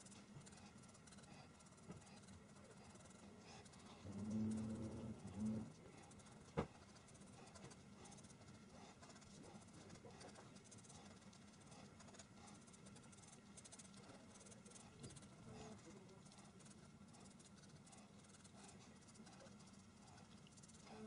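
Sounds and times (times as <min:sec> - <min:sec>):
marker scratching on paper: 0:00.0 - 0:21.0.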